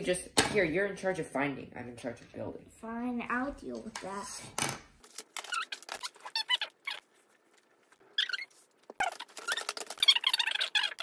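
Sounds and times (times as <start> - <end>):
wooden pieces squeaking: 5.0 - 11.0.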